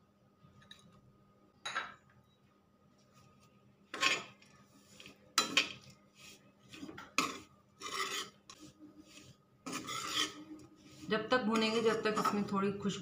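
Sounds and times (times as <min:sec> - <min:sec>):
metal spatula scraping metal pan: 0:03.9 - 0:12.4.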